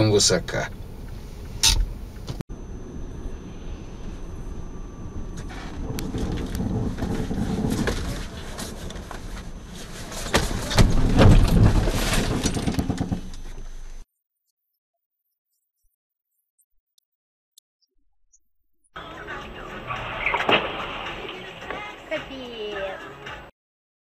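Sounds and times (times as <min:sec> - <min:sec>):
road and tyre noise: 0:00.6 - 0:14.0
clatters and knocks in car: 0:06.0 - 0:13.6.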